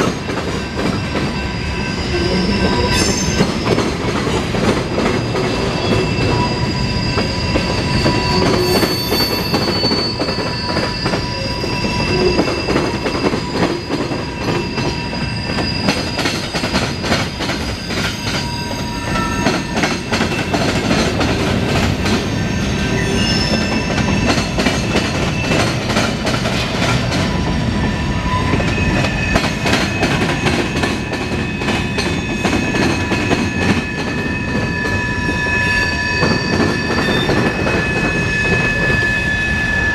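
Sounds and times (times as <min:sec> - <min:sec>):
train wheels rumbling over rails: 0:00.0 - 0:39.9
high thin wheel squeal: 0:05.2 - 0:20.8, 0:22.0 - 0:26.2, 0:27.2 - 0:39.9.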